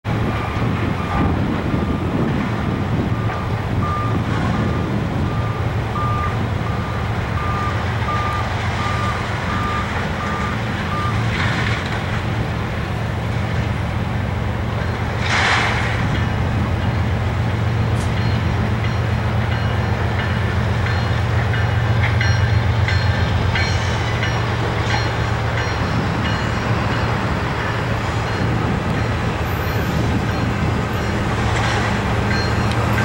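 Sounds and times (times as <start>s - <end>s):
reversing alarm beeping: 3.1s - 11.3s.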